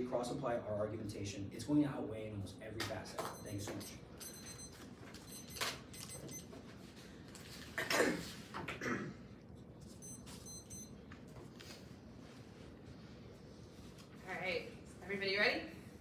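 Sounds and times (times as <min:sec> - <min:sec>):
high-pitched electronic beeps: 0:03.4 - 0:06.5, 0:10.0 - 0:10.9.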